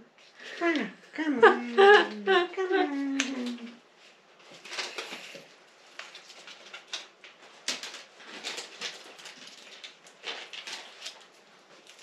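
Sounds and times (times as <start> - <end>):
packaging rustling and crinkling: 2.9 - 12.0.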